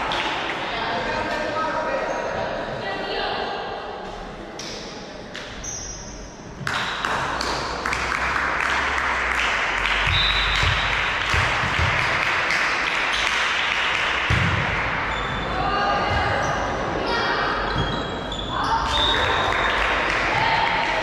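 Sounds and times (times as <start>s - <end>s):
spectators cheering and clapping: 6.7s - 15.1s, 19.0s - 21.0s.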